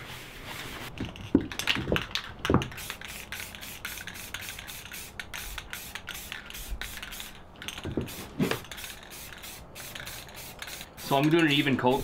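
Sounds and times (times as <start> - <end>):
aerosol spray can hissing: 2.6 - 7.4, 8.0 - 11.8.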